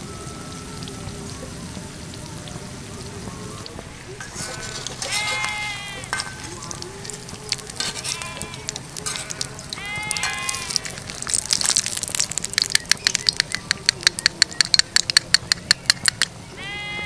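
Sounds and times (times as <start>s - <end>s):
hot oil sizzling: 0.0s - 16.8s
metal ladle clinking: 4.1s - 16.2s
animal bleating: 4.2s - 12.0s, 16.6s - 17.0s.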